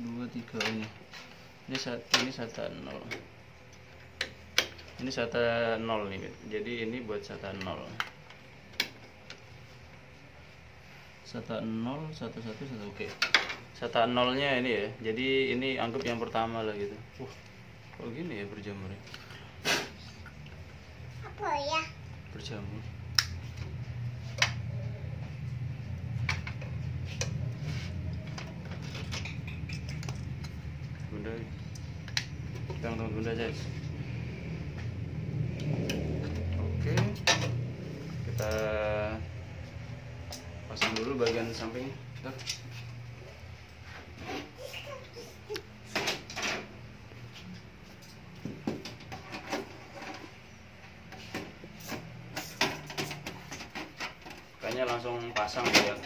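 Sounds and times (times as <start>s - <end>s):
steady low hum: 0.0s - 44.6s.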